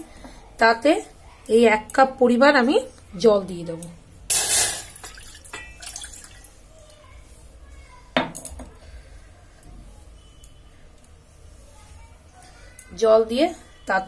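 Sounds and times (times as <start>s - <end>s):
water trickling and dripping into pot: 4.8s - 6.9s
glass clinking against pot: 5.0s - 6.3s.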